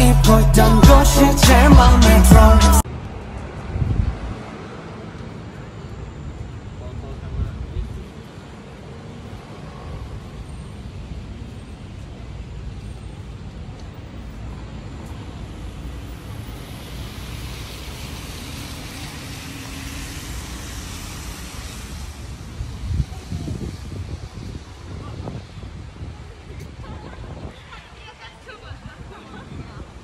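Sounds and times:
road traffic noise: 0:00.0 - 0:30.0
tyres hissing on wet pavement: 0:13.9 - 0:30.0.

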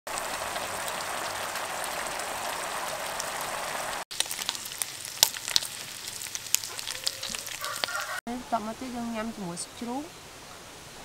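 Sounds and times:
meat sizzling in a frying pan: 0:00.1 - 0:08.2
oil popping and crackling: 0:00.1 - 0:08.2.

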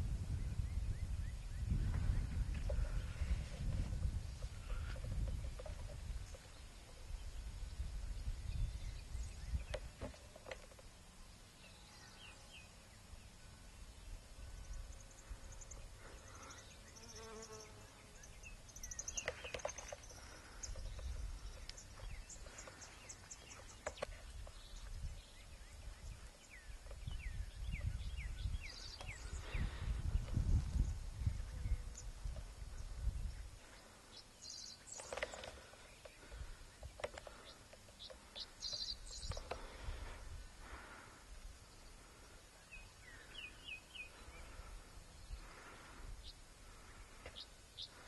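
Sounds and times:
wind gusting on microphone: 0:00.0 - 0:10.1, 0:23.4 - 0:33.6.

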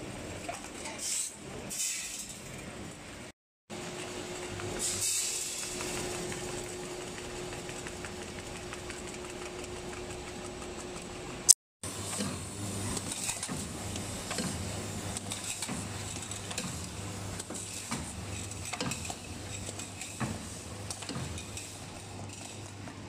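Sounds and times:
conveyor clicks and clatter: 0:05.4 - 0:11.1.

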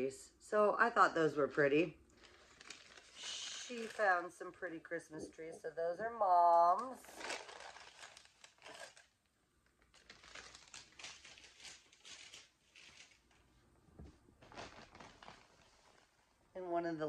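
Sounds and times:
rustling of bags and wrapping: 0:01.6 - 0:04.6, 0:06.5 - 0:16.4.

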